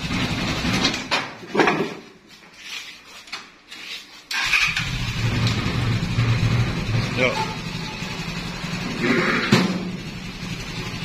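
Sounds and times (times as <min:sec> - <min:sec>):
knocks and clatters: 0:00.6 - 0:02.2
atv engine running: 0:04.4 - 0:11.0.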